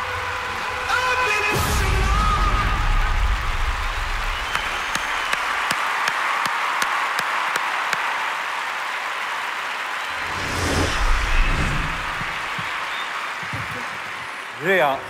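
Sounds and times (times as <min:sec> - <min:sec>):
audience applause: 0:00.0 - 0:15.0
sharp single claps: 0:04.4 - 0:08.2.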